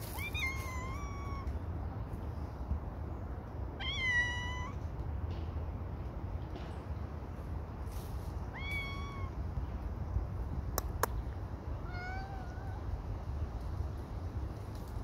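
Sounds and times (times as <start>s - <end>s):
cat meowing: 0.1s - 1.5s, 3.8s - 4.8s, 8.5s - 9.4s, 11.8s - 12.8s
sharp clicks: 10.7s - 11.2s.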